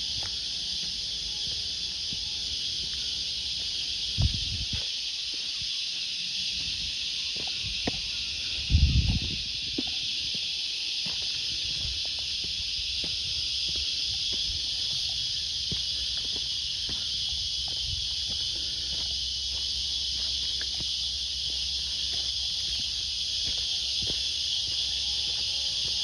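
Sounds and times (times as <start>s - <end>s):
footsteps on sandy leafy track: 0.0s - 26.0s
high-pitched insect chorus: 0.0s - 26.0s.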